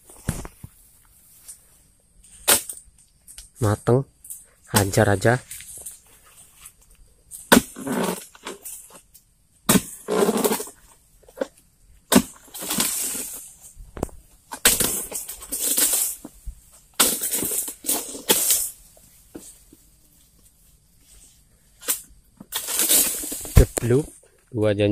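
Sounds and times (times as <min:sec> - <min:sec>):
palm fronds rustling: 0:04.3 - 0:09.1, 0:12.1 - 0:24.3.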